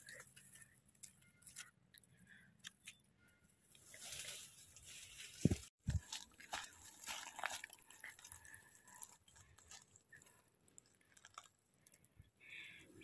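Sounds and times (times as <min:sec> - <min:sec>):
dry leaves crackling and rustling: 0:03.8 - 0:11.5.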